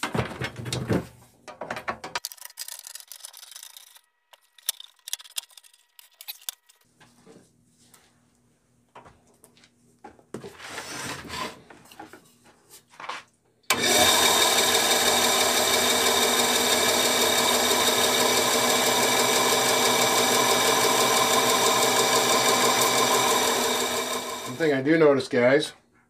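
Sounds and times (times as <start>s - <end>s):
bandsaw running hum: 13.7s - 24.7s.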